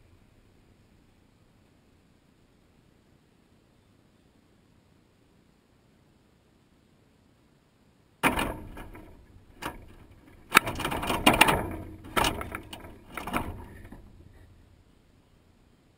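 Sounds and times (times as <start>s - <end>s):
bird rattling metal mesh feeder: 8.2s - 14.8s.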